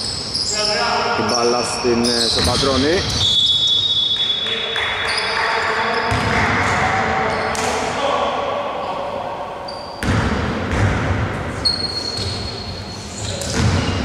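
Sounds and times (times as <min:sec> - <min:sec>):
basketball bouncing on wooden floor: 0:06.1 - 0:06.4, 0:13.4 - 0:14.0.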